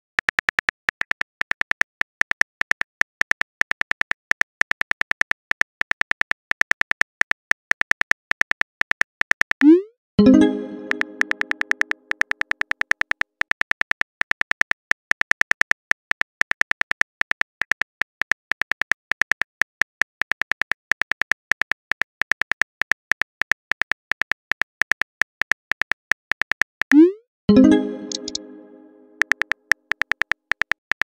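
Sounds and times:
keyboard typing clicks: 6.6s - 15.8s, 26.9s - 31.0s
pitched chime: 10.2s - 11.7s, 27.0s - 29.3s.

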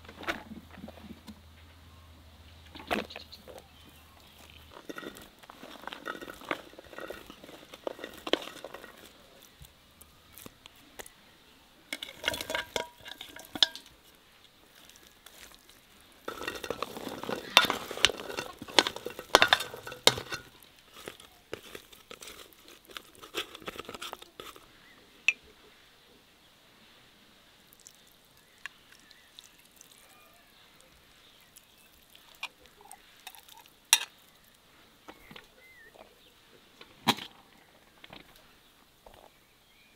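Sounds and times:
spoon scraping enamel plate: 4.6s - 9.6s, 11.9s - 14.0s, 16.3s - 24.6s.

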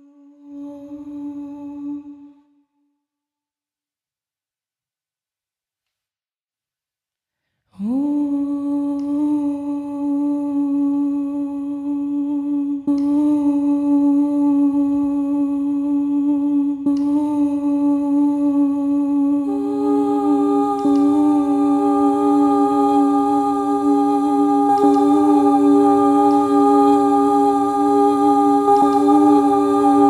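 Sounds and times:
woman humming amplified drone: 7.8s - 30.0s.

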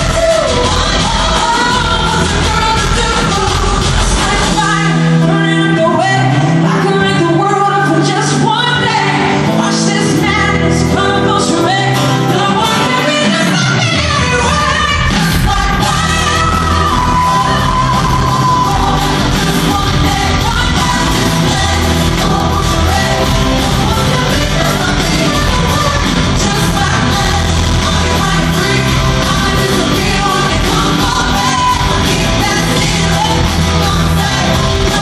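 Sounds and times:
bass and drums: 0.0s - 5.3s, 11.9s - 35.0s
pop-rock band playing: 0.0s - 35.0s
woman singing into a microphone: 0.0s - 35.0s.

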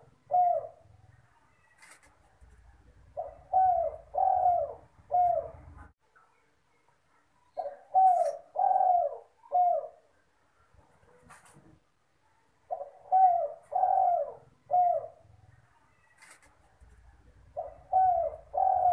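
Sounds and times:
dove cooing: 0.0s - 1.0s, 2.7s - 5.9s, 7.6s - 10.2s, 12.7s - 15.3s, 17.2s - 18.9s.

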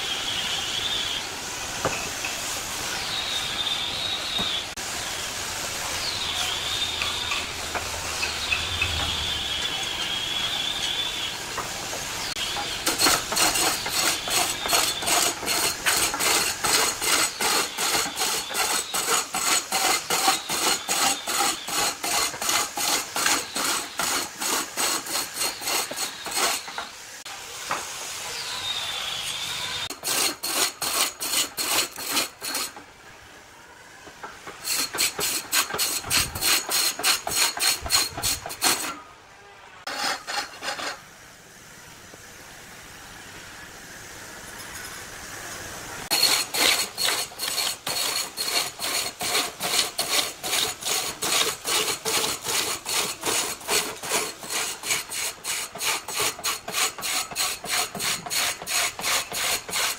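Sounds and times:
hand tool scraping wood: 12.4s - 26.9s, 29.9s - 32.8s, 34.4s - 39.0s, 39.9s - 41.0s, 46.1s - 59.9s.

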